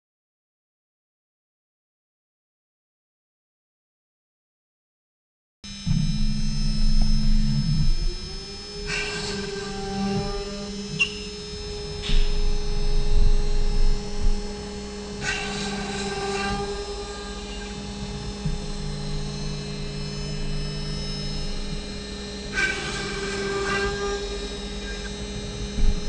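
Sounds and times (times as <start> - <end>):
low drone: 5.7 - 26.0
router spindle whine: 5.7 - 26.0.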